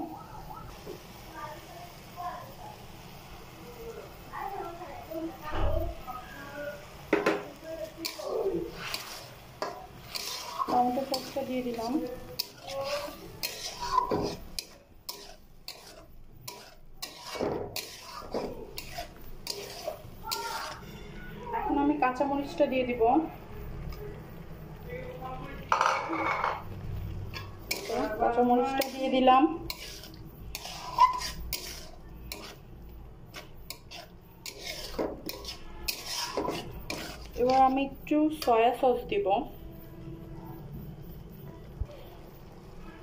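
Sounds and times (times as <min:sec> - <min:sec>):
spatula scraping pan: 0:07.1 - 0:22.6, 0:25.7 - 0:39.1
spatula tapping metal pan: 0:08.9 - 0:21.0, 0:27.3 - 0:32.6, 0:33.3 - 0:38.6.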